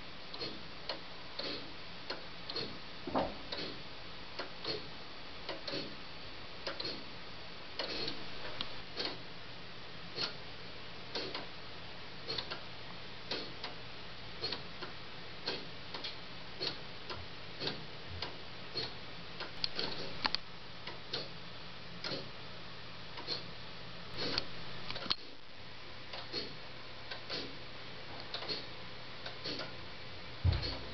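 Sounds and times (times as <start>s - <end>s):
pendulum clock ticking: 0.3s - 2.8s, 6.6s - 7.1s, 14.4s - 20.2s.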